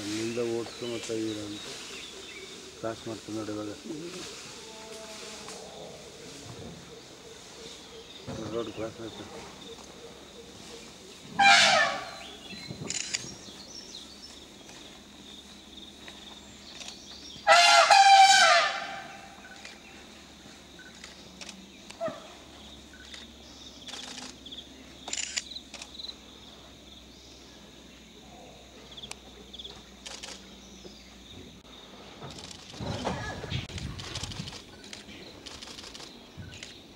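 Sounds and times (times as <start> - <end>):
elephant trumpeting: 11.4 - 12.4, 17.4 - 19.4.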